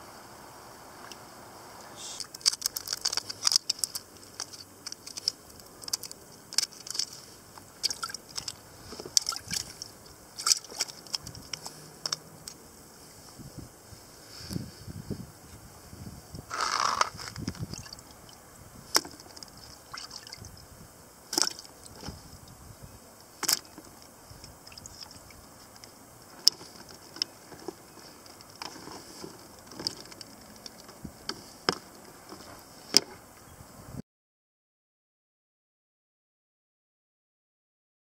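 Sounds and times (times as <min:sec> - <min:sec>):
water sloshing in a bucket: 0:06.8 - 0:11.6, 0:17.4 - 0:18.3, 0:18.9 - 0:20.5, 0:21.3 - 0:22.2.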